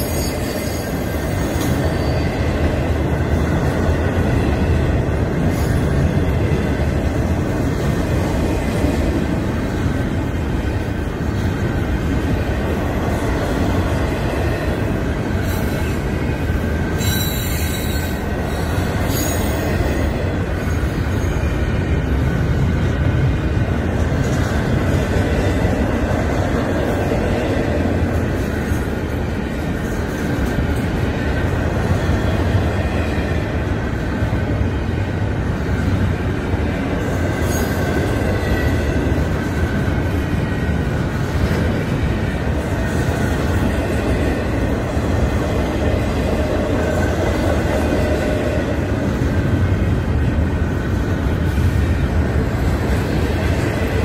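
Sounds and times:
rumble of train wheels on rail: 0:00.0 - 0:54.0
wheels squealing: 0:16.9 - 0:19.7.

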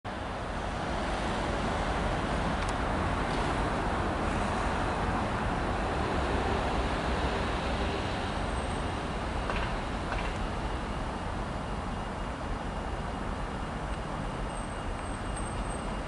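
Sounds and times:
diesel locomotive rumbling: 0:00.1 - 0:16.0.

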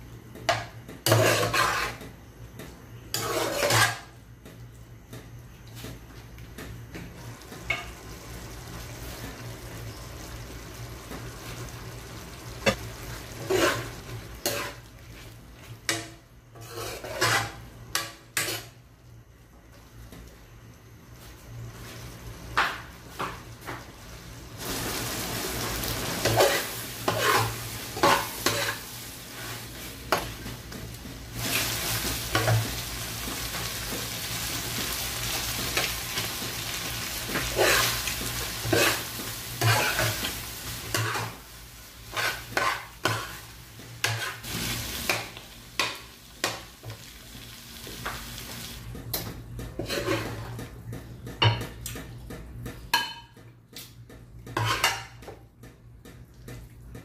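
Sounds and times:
spatula scraping and knocking pan: 0:00.5 - 0:02.2, 0:03.1 - 0:04.2, 0:13.4 - 0:14.9, 0:15.8 - 0:18.7, 0:26.2 - 0:30.4, 0:37.2 - 0:41.4, 0:42.1 - 0:47.0, 0:49.6 - 0:50.6, 0:54.5 - 0:55.3
food sizzling in frying pan: 0:07.2 - 0:18.8, 0:23.1 - 0:48.9.

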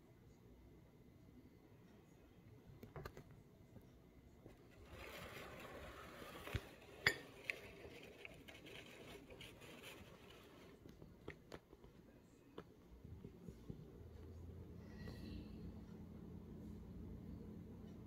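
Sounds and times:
low hiss of room tone: 0:00.0 - 0:18.0
faint sharp clicks and taps: 0:02.6 - 0:04.7, 0:07.4 - 0:15.2.

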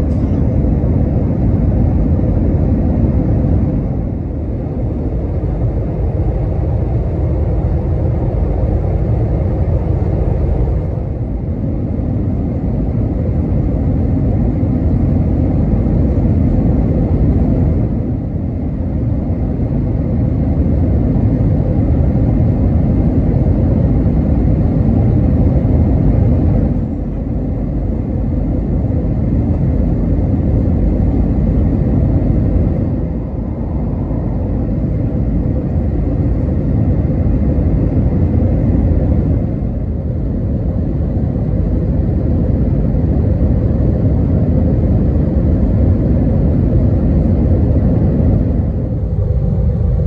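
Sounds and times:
jet engines rumbling: 0:00.0 - 0:50.0
rushing air: 0:25.1 - 0:50.0.

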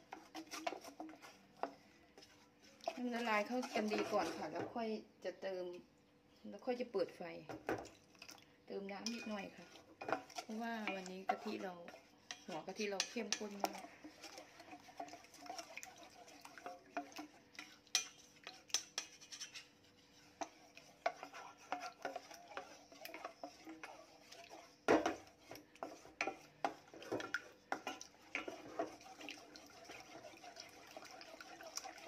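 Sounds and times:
spatula scraping a saucepan: 0:00.0 - 0:04.8, 0:09.0 - 0:32.0
spatula knocking pot: 0:09.0 - 0:32.0.

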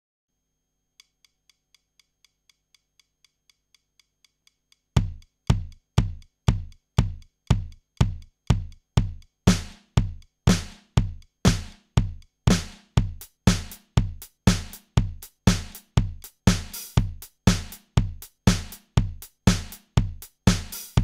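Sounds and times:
drum machine high ticks: 0:01.0 - 0:21.0
kick drum: 0:05.0 - 0:21.0.

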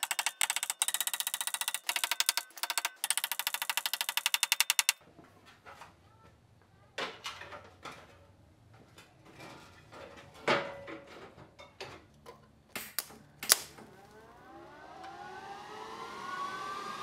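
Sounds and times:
metal parts clunking and clicking: 0:00.0 - 0:05.0
rising siren-like tone: 0:13.9 - 0:17.0.

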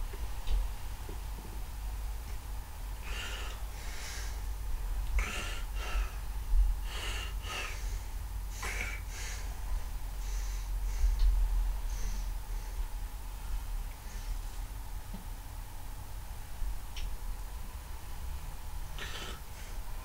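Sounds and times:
breathing close to microphone: 0:03.0 - 0:04.5, 0:05.2 - 0:14.8, 0:18.9 - 0:20.0.

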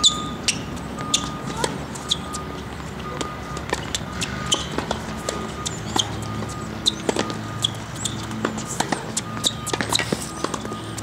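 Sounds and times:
tennis ball bouncing: 0:00.0 - 0:11.0
racket striking tennis ball: 0:03.7 - 0:10.7.

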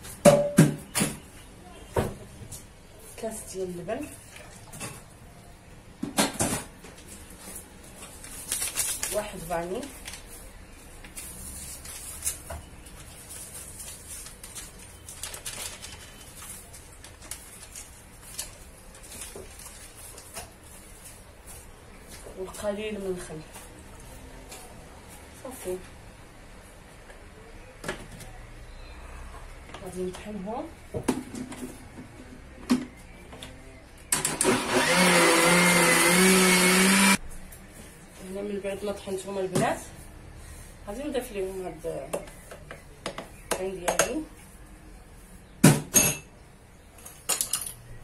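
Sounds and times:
paper sachet rustling: 0:07.0 - 0:22.2
electric blender whining: 0:34.3 - 0:37.2.

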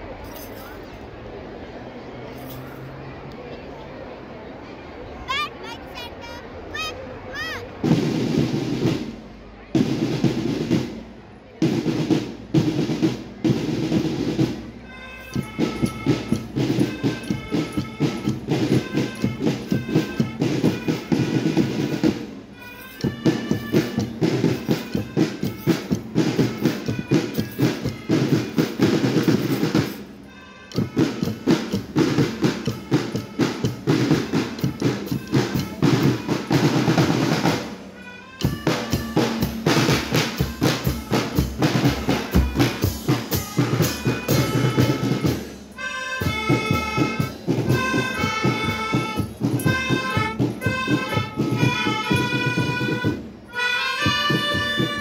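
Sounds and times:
snare and bass drums march: 0:06.7 - 0:55.0
melodica melody: 0:14.9 - 0:55.0.

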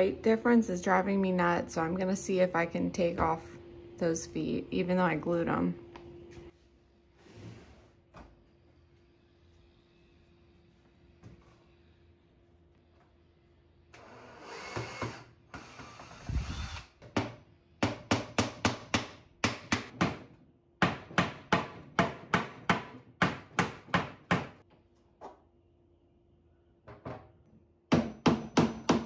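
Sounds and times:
hammer striking wood: 0:17.1 - 0:24.6, 0:27.9 - 0:29.0.

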